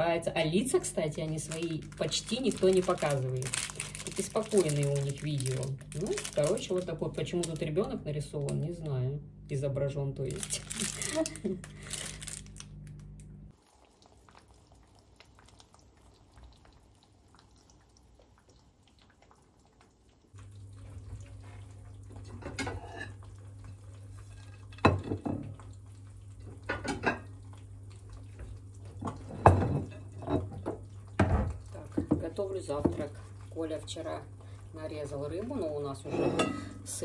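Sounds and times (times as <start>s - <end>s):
steady low hum: 0.0s - 13.5s
eggs frying in a pan: 0.2s - 7.6s, 13.5s - 36.0s.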